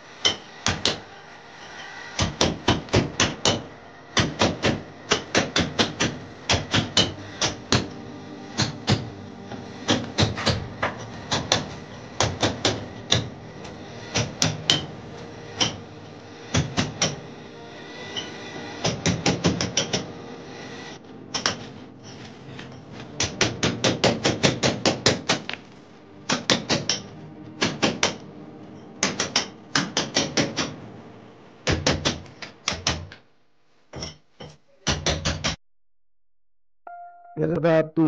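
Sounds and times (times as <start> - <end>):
hammer striking chisel into brick: 2.2 - 8.0, 14.1 - 14.9, 15.6 - 15.8, 26.3 - 28.2, 29.0 - 30.7.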